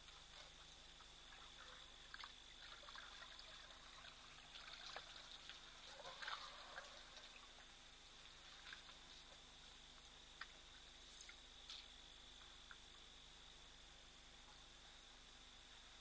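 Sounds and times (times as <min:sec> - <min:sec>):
water splashing: 0:00.0 - 0:07.7
elephant drinking water: 0:00.0 - 0:09.8.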